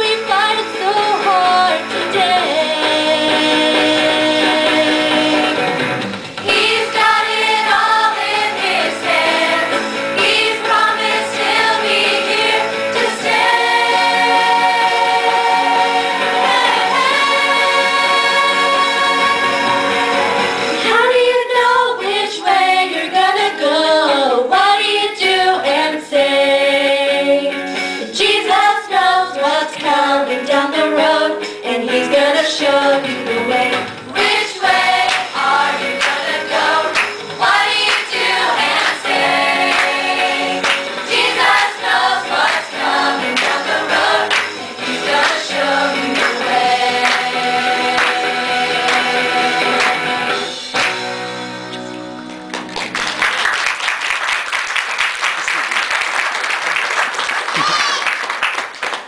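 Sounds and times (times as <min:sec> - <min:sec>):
choir singing pop song: 0:00.0 - 0:51.2
band accompaniment with beat: 0:03.4 - 0:13.1, 0:19.0 - 0:20.8, 0:33.2 - 0:53.2.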